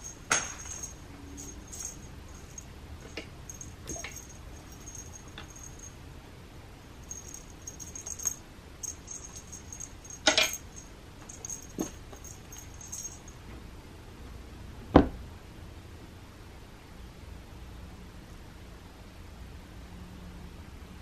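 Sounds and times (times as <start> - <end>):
cat toy jingling: 0.0 - 6.0, 7.0 - 13.4.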